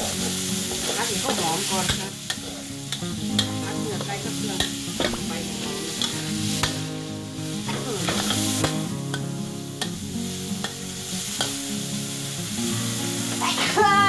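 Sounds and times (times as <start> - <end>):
oil sizzling: 0.0 - 14.0.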